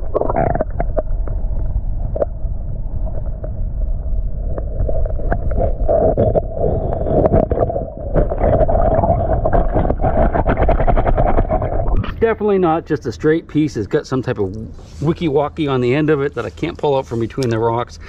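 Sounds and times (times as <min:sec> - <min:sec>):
muffled underwater flowing water: 0:00.0 - 0:18.0
pebbles clicking underwater: 0:04.5 - 0:12.1.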